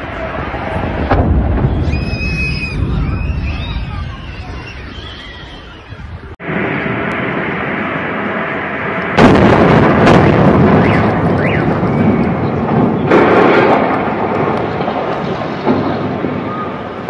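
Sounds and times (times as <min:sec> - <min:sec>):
sharp bangs: 0:00.0 - 0:04.6, 0:06.4 - 0:17.0
rolling rumble: 0:00.0 - 0:17.0
loud explosion blast: 0:00.4 - 0:05.1, 0:06.2 - 0:17.0.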